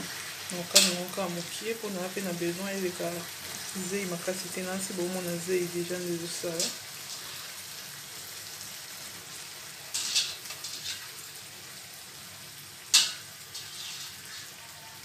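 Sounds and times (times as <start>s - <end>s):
sauce sizzling in a frying pan: 0.0s - 15.0s
scraping in pan: 9.9s - 11.2s, 13.0s - 15.0s.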